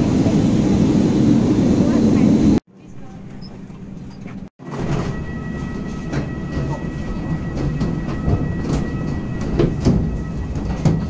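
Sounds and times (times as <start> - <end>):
knocks and clatter: 3.6 - 11.0.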